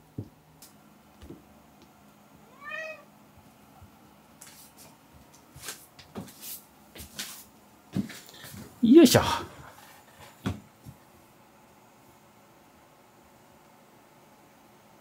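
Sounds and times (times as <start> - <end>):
cat meowing: 2.5 - 3.1.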